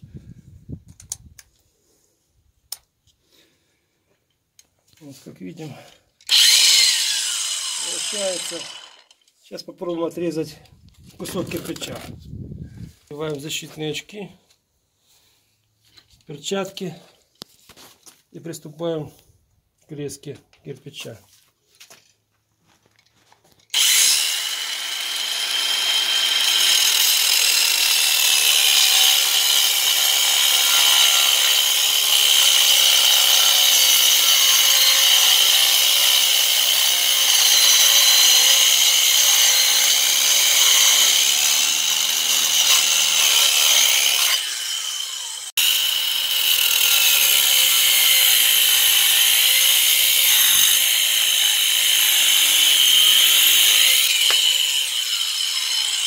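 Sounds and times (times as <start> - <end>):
angle grinder cutting brick: 6.3 - 9.3, 23.7 - 56.0.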